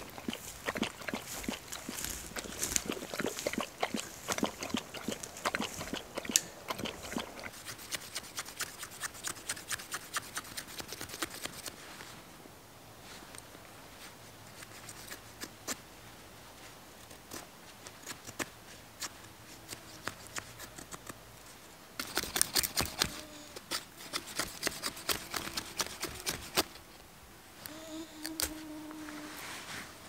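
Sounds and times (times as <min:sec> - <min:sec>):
knife scraping ferro rod: 0:22.0 - 0:26.8
knife scraping wood curls: 0:22.0 - 0:26.8.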